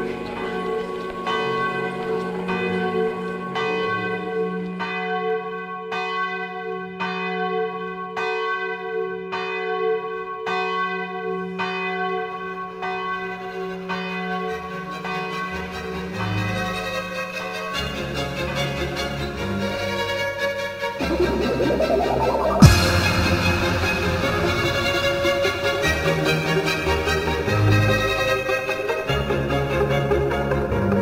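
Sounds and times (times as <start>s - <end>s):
sustained low drone: 20.9s - 28.7s
bell tone strikes: 21.0s - 27.4s.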